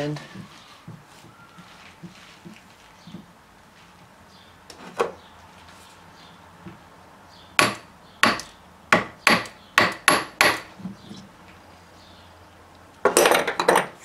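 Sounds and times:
hammer tapping metal: 0:07.6 - 0:10.7.

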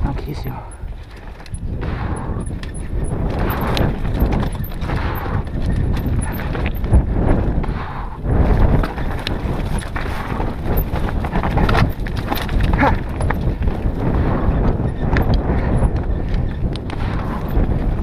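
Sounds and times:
tyres crunching over stones: 0:00.0 - 0:01.8, 0:08.4 - 0:14.1
bike rattling: 0:00.0 - 0:18.0
wind rumble on microphone: 0:00.0 - 0:18.0.

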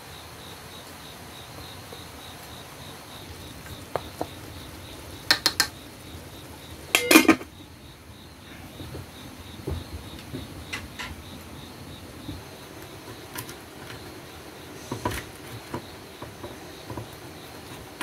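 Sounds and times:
chopsticks tapping pot rim: 0:05.3 - 0:05.8
metal lid clattering onto pot: 0:06.9 - 0:07.5.

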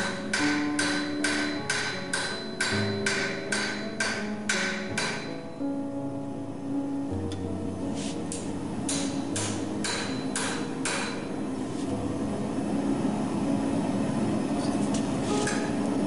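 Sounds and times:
hammer striking metal on anvil: 0:00.0 - 0:05.7, 0:08.3 - 0:11.4, 0:15.4 - 0:15.8.

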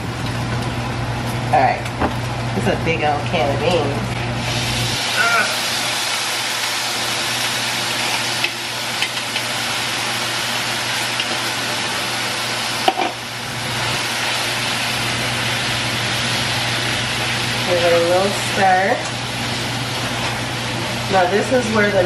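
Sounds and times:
pan hissing on gas burner: 0:04.3 - 0:22.0
metal can tapping on pan: 0:12.8 - 0:13.2.

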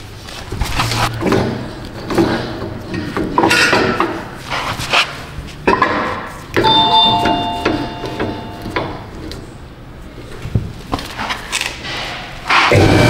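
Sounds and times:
metal clanks and scrapes: 0:00.7 - 0:06.3
metallic ringing tone: 0:06.6 - 0:09.2.

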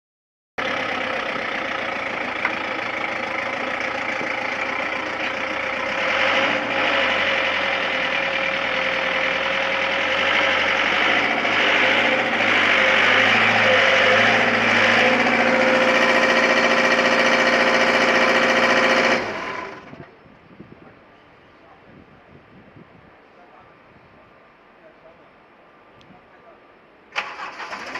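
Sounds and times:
excavator diesel engine running: 0:00.6 - 0:20.2, 0:27.2 - 0:27.9.

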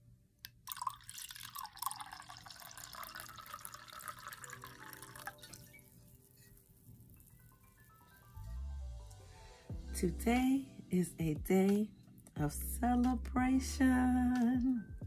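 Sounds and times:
wine pouring into a glass: 0:00.7 - 0:08.3.

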